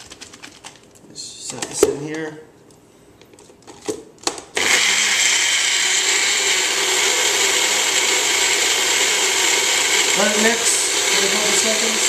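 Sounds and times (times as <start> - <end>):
blender motor running: 4.6 - 12.0.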